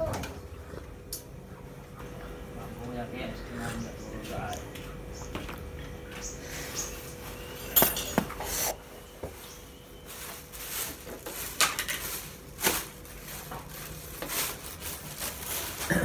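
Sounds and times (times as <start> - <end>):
pots and pans clinking: 7.6 - 8.4.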